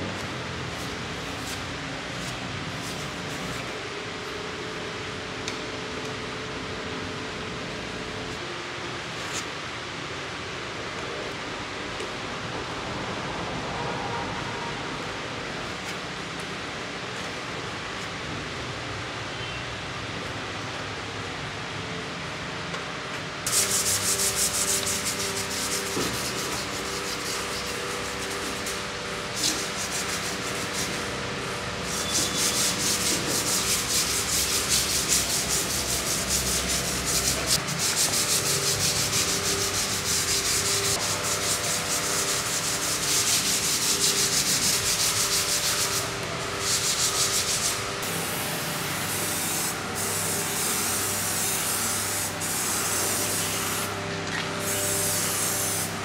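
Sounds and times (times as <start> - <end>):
sandpaper rubbing: 0.8 - 3.7, 23.5 - 54.0, 54.6 - 56.0.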